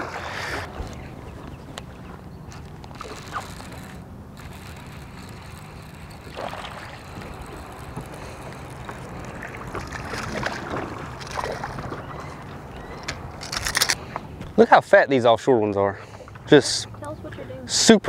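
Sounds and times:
water lapping at a boat: 0.0 - 14.4, 16.0 - 17.7
steady low hum: 0.0 - 14.9
fish splashing: 2.6 - 13.6.

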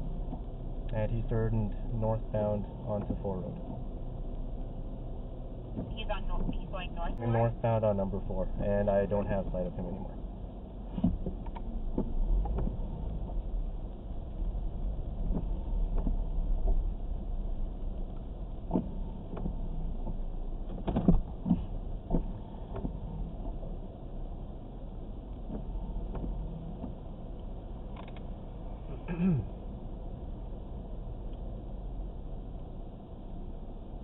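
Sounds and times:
engine and tyres rumbling: 0.0 - 34.0.

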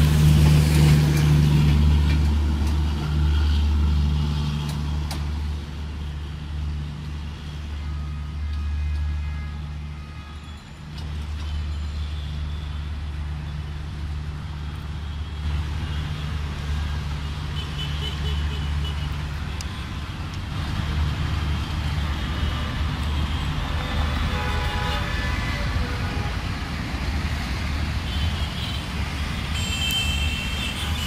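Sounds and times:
traffic noise: 0.0 - 31.0
vehicle horn: 23.4 - 26.3, 29.5 - 31.0.

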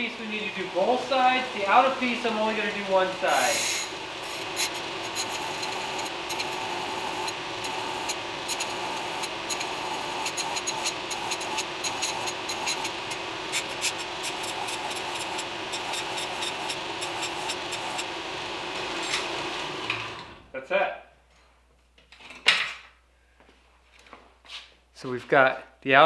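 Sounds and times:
belt grinder grinding steel: 3.0 - 20.0.

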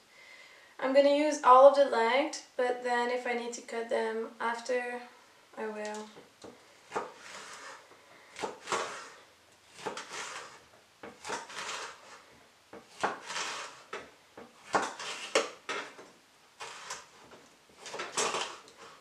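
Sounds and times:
knife slicing on wooden board: 6.9 - 7.8, 8.4 - 12.2, 12.9 - 14.0, 14.6 - 15.6, 16.6 - 17.1.

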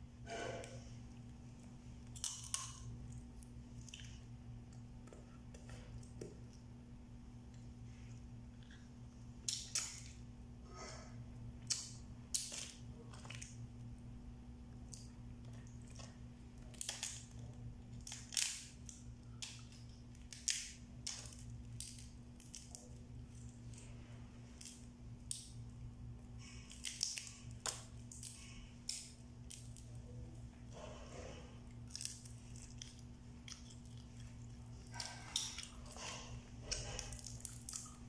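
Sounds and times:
steady low hum: 0.0 - 38.0
crab shells cracking: 2.0 - 4.1, 14.9 - 23.9, 26.4 - 30.2, 31.7 - 38.0.

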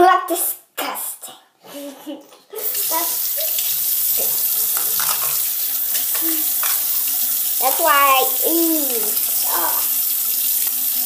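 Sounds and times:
tap water running into sink: 2.6 - 11.0.

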